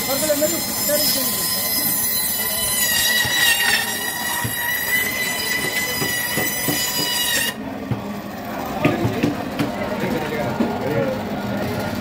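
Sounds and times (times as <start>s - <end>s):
band saw squealing: 0.0s - 7.6s.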